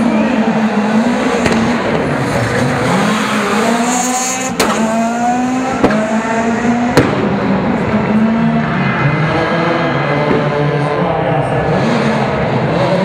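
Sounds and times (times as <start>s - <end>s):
rally car engine accelerating: 0.0s - 13.0s
sharp cracks at upshifts: 1.2s - 8.3s.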